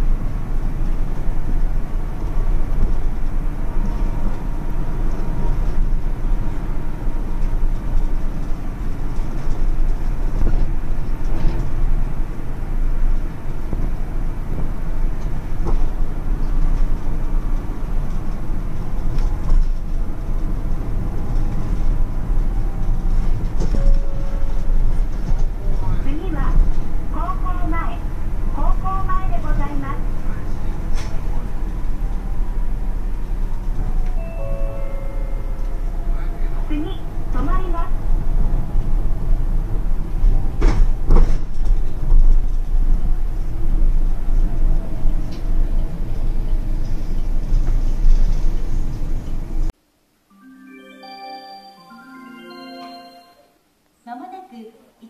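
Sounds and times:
train wheels rumbling on rails: 0.0s - 49.7s.

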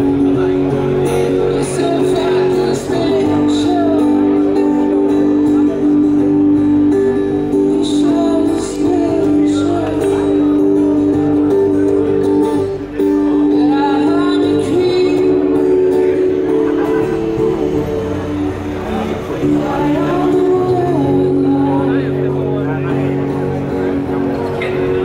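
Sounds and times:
person singing: 0.0s - 22.6s
amplified acoustic guitar: 0.0s - 25.0s
crowd chatting: 0.0s - 25.0s.

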